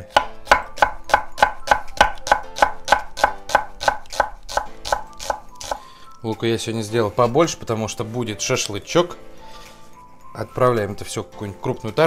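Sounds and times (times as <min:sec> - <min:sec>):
knife chopping on wooden board: 0:00.0 - 0:05.9.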